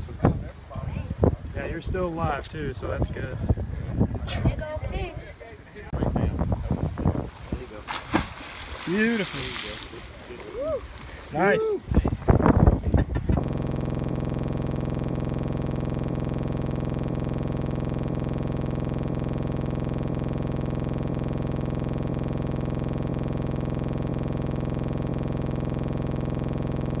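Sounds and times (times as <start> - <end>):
synthesizer chord: 13.4 - 27.0.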